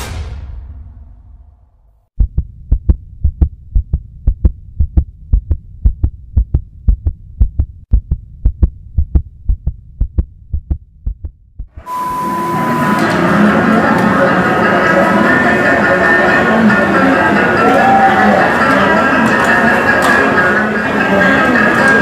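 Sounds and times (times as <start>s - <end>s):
low hum: 0.0s - 13.6s
heartbeat thumps: 2.2s - 11.9s.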